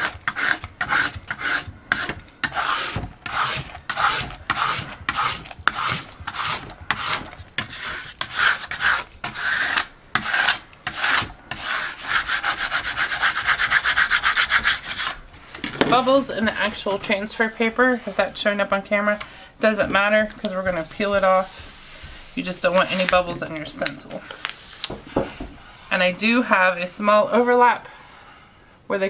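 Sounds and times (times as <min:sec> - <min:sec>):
plastic scraper rubbing paper: 0:00.0 - 0:15.2, 0:20.2 - 0:27.7.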